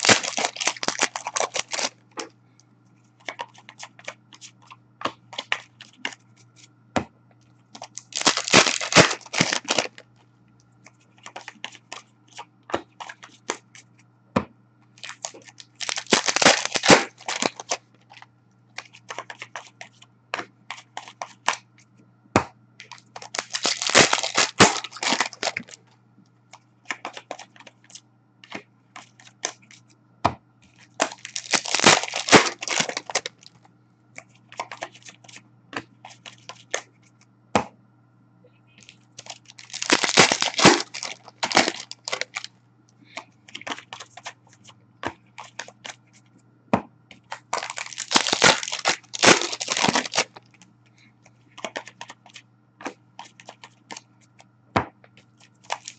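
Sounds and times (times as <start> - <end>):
card pack wrappers tearing: 0.0 - 2.0, 7.8 - 10.0, 15.0 - 18.2, 22.8 - 25.8, 30.8 - 33.6, 38.8 - 42.5, 47.3 - 50.4, 55.4 - 55.9
cards clicking and flicking: 0.0 - 2.3, 7.8 - 10.0, 10.9 - 13.9, 15.0 - 21.6, 22.4 - 25.8, 30.8 - 33.5, 38.9 - 42.5.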